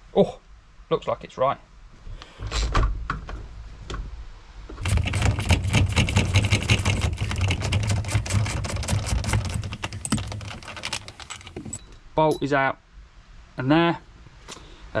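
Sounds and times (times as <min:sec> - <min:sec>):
fast mechanical clicking clatter: 0:04.8 - 0:11.8.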